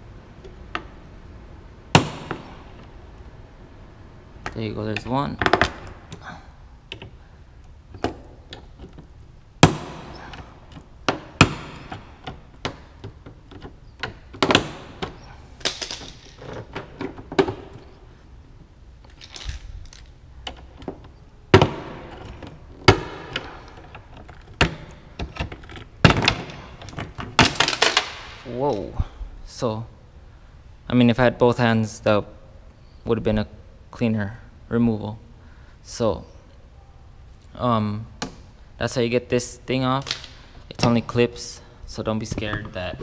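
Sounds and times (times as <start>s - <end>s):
plastic clips popping: 40.0s - 40.9s.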